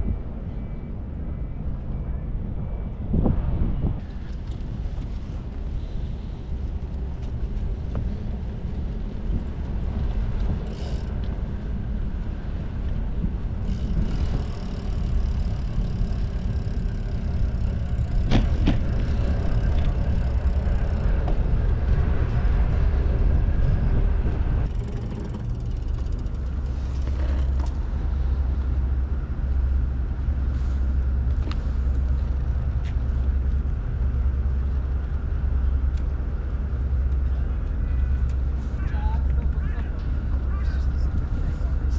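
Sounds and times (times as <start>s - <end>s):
wind buffeting microphone: 0.0s - 41.9s
bicycle rumbling over paving: 4.0s - 41.9s.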